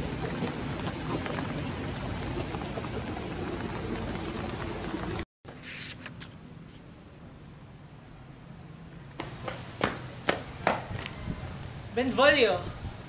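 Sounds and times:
steady rain: 0.0 - 5.2
rustle: 5.5 - 13.0.

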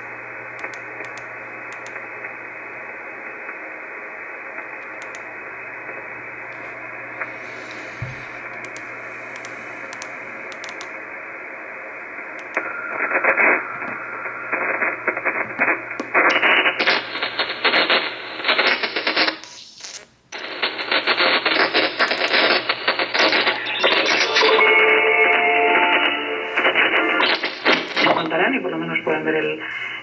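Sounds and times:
crackling radio static: 0.0 - 30.0
radio receiver hiss: 0.0 - 30.0.

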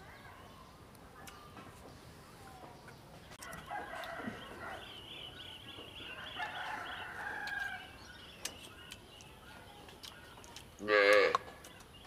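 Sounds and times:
rooster crowing: 3.4 - 4.9, 6.2 - 7.9.

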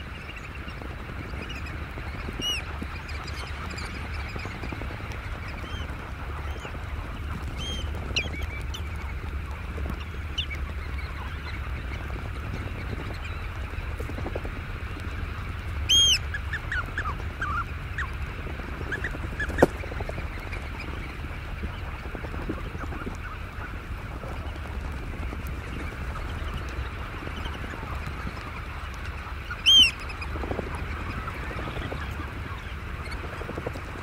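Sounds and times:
hubbub of bird calls: 0.0 - 34.0
loud piping bird call: 15.9 - 18.1, 29.5 - 30.1.

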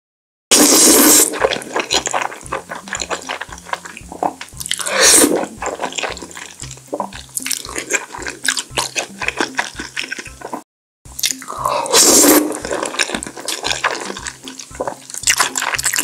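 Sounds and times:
noodle slurping: 0.5 - 10.6, 11.2 - 16.0
chewing and lip smacks: 1.4 - 10.6, 12.5 - 16.0.

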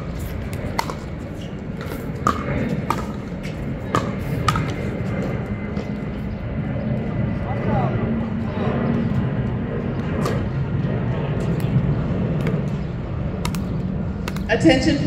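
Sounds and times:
pickleball paddle and ball pops: 0.6 - 1.0, 1.8 - 3.2, 4.0 - 4.8, 13.4 - 14.5.

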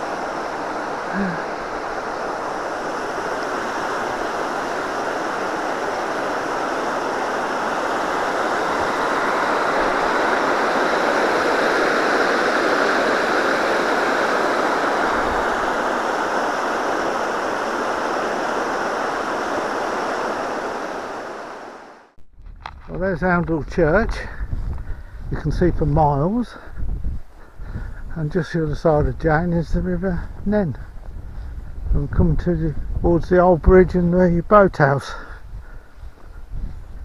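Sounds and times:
water rushing over weir: 0.0 - 22.2.

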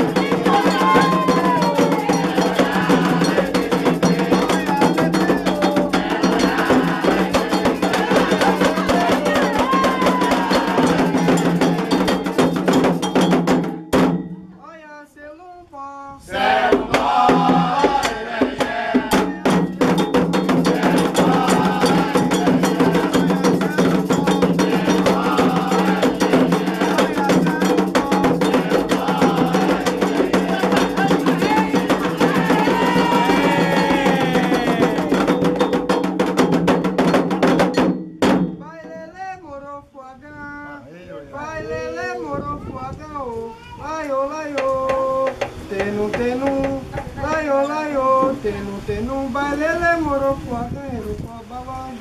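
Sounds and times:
voices singing: 0.0 - 12.9, 14.6 - 35.8, 38.6 - 52.0
iron bell beating a rhythm: 0.0 - 14.5, 19.2 - 38.2
hand drums: 0.0 - 14.6, 16.4 - 39.2, 44.5 - 47.5.

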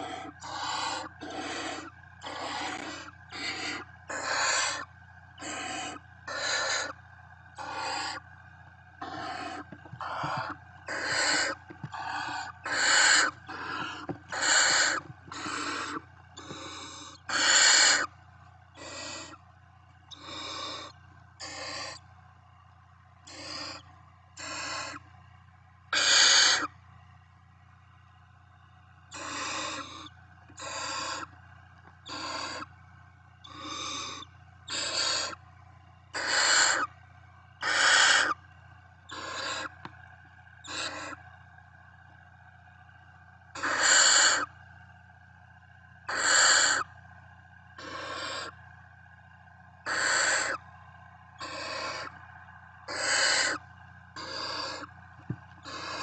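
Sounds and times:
owl nestlings hissing begging calls: 0.0 - 7.0, 7.6 - 8.3, 9.0 - 18.1, 18.8 - 19.4, 20.1 - 22.0, 23.3 - 23.8, 24.4 - 25.0, 25.9 - 26.7, 29.1 - 31.3, 32.0 - 32.7, 33.4 - 35.4, 36.2 - 36.9, 37.6 - 38.4, 39.1 - 39.8, 40.6 - 41.2, 43.6 - 44.5, 46.1 - 46.9, 47.8 - 48.5, 49.9 - 50.6, 51.4 - 52.1, 52.9 - 53.6, 54.2 - 54.9, 55.6 - 56.0.

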